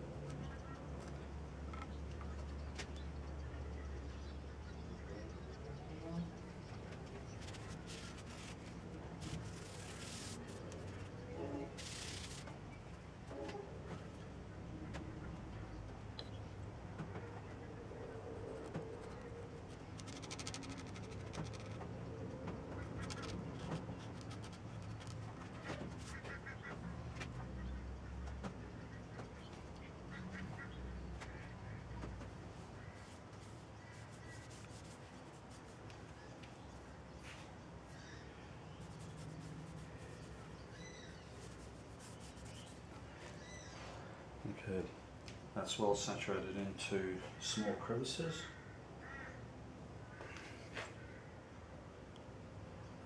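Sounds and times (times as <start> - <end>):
cloth rag wiping wood: 7.8 - 10.6, 33.0 - 35.8
bird calls: 35.6 - 44.1.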